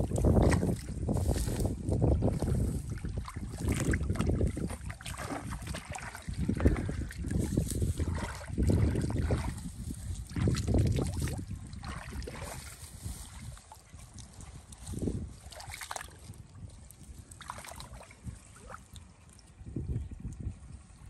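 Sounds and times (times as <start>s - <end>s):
splashing in muddy puddle: 0.0s - 19.6s
dry grass rustling: 1.1s - 2.9s, 6.9s - 8.7s, 9.5s - 11.3s, 12.5s - 15.4s.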